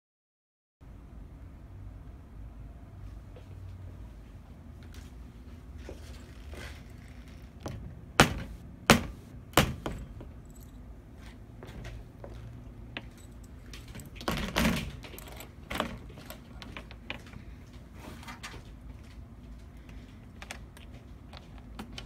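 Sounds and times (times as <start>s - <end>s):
metal lock parts knocking: 13.7s - 17.2s.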